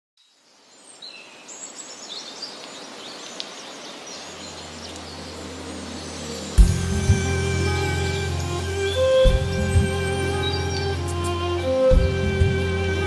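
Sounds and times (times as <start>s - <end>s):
birds chirping and twittering: 0.2s - 13.0s
rushing background: 4.6s - 13.0s.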